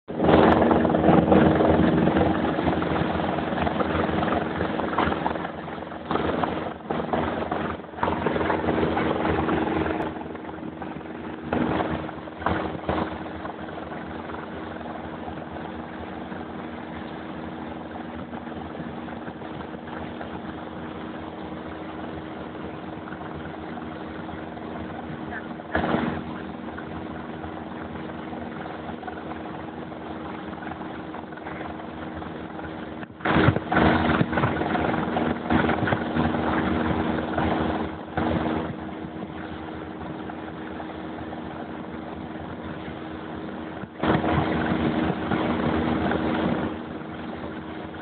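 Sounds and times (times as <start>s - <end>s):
engine humming: 0.1s - 48.0s.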